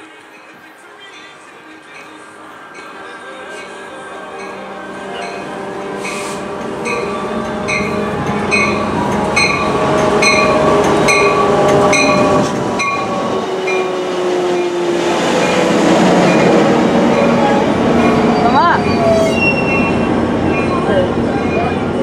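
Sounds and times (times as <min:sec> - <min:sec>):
train bell ringing: 0:00.0 - 0:14.8, 0:15.4 - 0:22.0
train wheels rumbling on rail: 0:00.0 - 0:22.0
brake squealing: 0:15.4 - 0:22.0.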